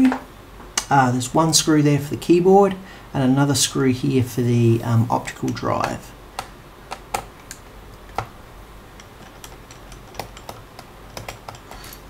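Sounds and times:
screwdriver clicking on plastic: 0:09.0 - 0:11.9.

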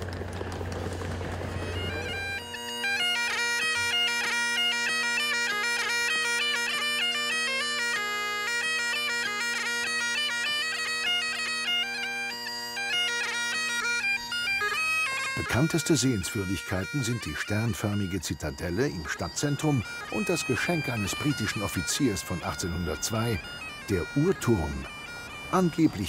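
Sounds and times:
crowd noise: 0:00.0 - 0:02.4
bagpipe playing a tune: 0:00.2 - 0:26.0.

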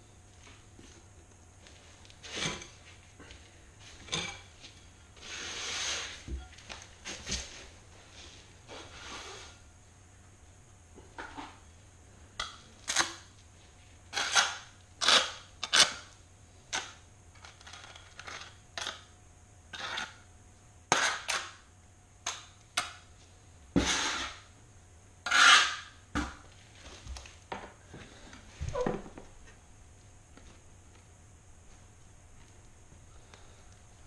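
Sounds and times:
trowel scraping mortar: 0:14.1 - 0:16.0, 0:19.7 - 0:20.2, 0:20.9 - 0:21.6, 0:23.8 - 0:24.5, 0:25.2 - 0:25.9.

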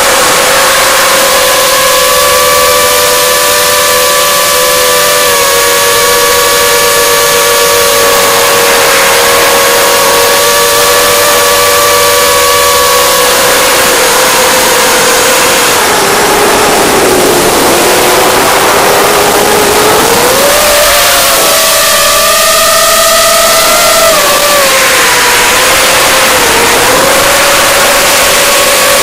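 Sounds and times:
drone motors whining: 0:00.0 - 0:29.0
rushing wind hiss: 0:10.9 - 0:22.1.

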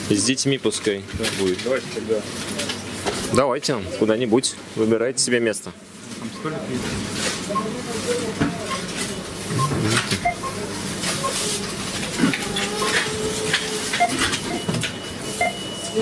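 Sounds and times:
checkout scanner beeps: 0:06.2 - 0:06.8, 0:07.4 - 0:16.0
distant voices: 0:06.3 - 0:16.0.

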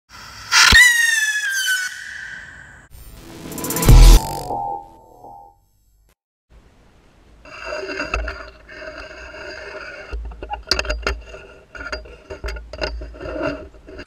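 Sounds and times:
handling noise scraping and rubbing: 0:07.4 - 0:14.0.

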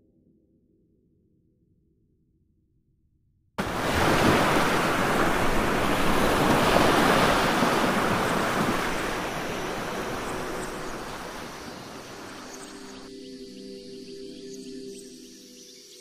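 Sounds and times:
water splashing and churning: 0:03.6 - 0:13.1.

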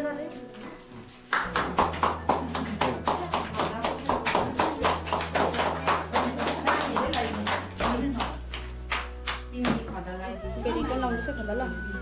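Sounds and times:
group clapping in rhythm: 0:01.3 - 0:09.9.

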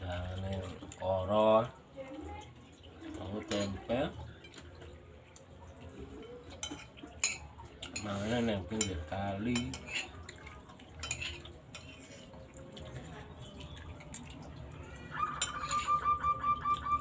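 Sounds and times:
spoons clinking on ceramic: 0:06.2 - 0:12.4, 0:15.4 - 0:16.0.

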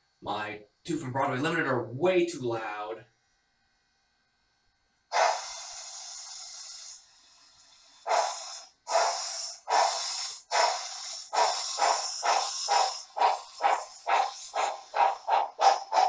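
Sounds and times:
loud steam hiss: 0:05.1 - 0:16.0
steam locomotive chuffs: 0:05.1 - 0:16.0.

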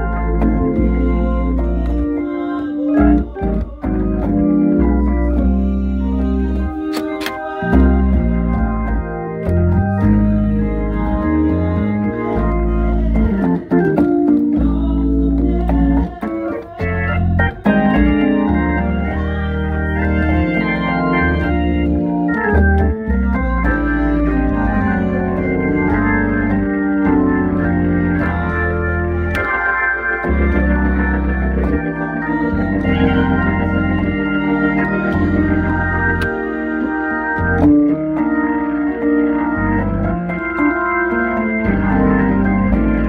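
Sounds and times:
organ playing gospel song: 0:00.0 - 0:43.0.

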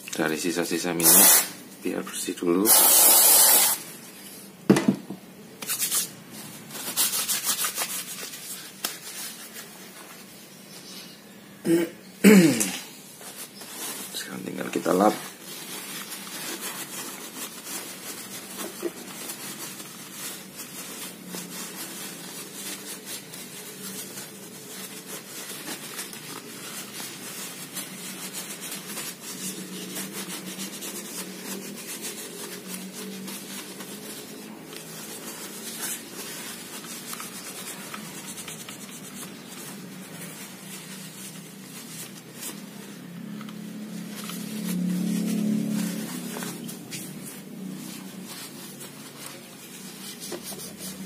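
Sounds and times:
cloth rubbing on fishing reel: 0:14.8 - 0:51.0.

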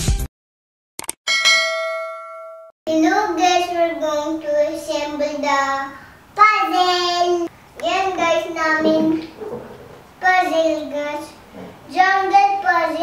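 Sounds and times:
notification bell ding: 0:01.3 - 0:02.7
girl singing: 0:06.4 - 0:09.3.

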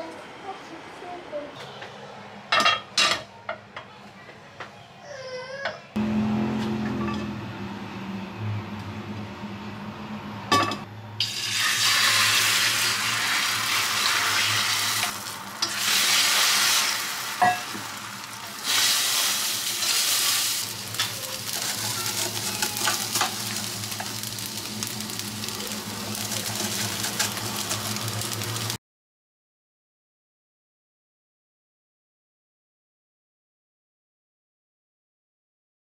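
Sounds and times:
food sizzling in a frying pan: 0:11.2 - 0:28.8.

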